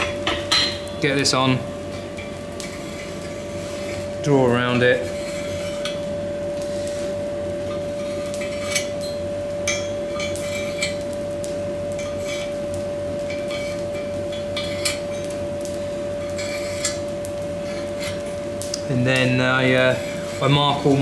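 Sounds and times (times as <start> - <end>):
steady hum: 0.0 - 21.0
chalk scraping along steel: 5.0 - 6.0, 16.3 - 17.0, 19.8 - 21.0.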